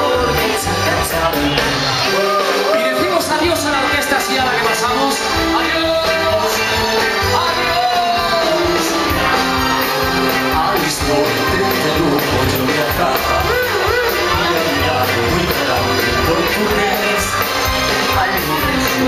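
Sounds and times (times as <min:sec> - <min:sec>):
live band music over loudspeakers: 0:00.0 - 0:19.0
person singing: 0:00.0 - 0:19.0.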